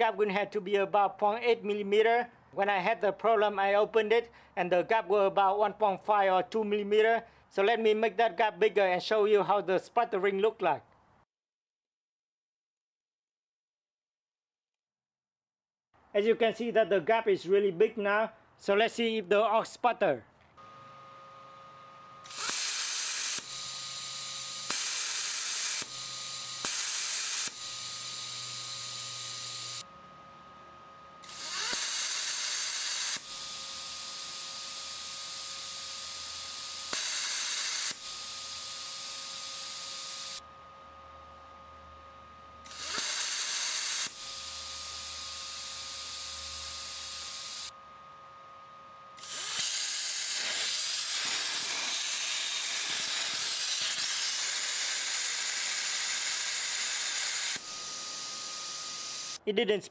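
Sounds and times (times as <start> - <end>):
faint steady whine: 20.6 - 22.5, 23.3 - 50.5, 57.4 - 59.5
plasma cutter torch hissing: 22.2 - 29.8, 31.2 - 40.4, 42.7 - 47.7, 49.2 - 59.4.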